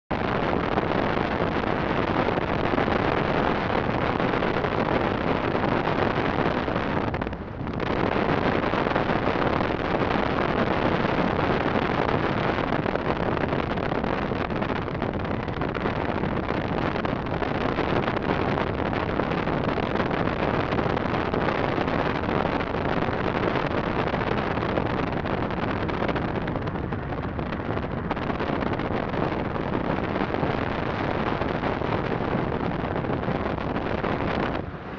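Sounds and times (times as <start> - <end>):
car wind and road noise: 0.1 - 34.9
wind buffeting microphone: 0.1 - 34.9.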